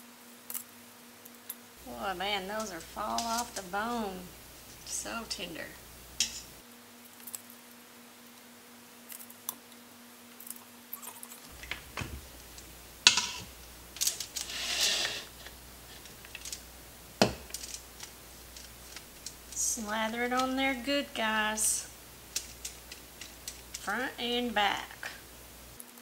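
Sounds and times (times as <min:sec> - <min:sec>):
scraping rustle: 0:01.8 - 0:05.1, 0:11.4 - 0:16.7
kitchen handling clicks and knocks: 0:11.5 - 0:15.3.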